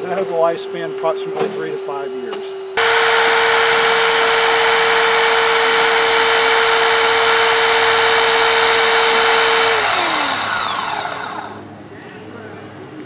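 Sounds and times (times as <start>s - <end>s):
hydraulic rescue cutter whining: 2.8s - 11.6s.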